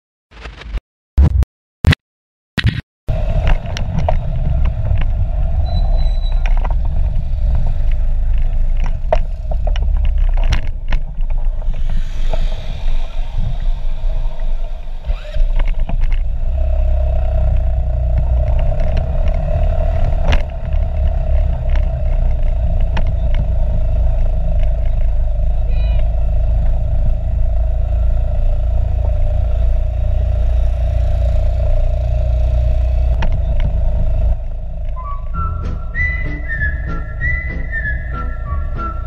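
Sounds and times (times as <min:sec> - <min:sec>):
scooter engine climbing a hill: 0:03.1 - 0:39.0.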